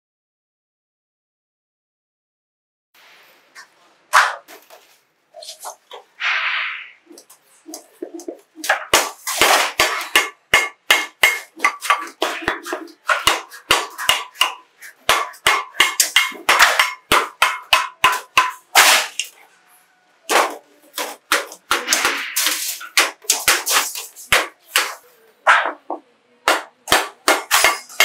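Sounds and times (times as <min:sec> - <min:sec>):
shears snipping metal sheet: 0:15.1 - 0:19.4, 0:20.3 - 0:25.7, 0:26.9 - 0:28.0.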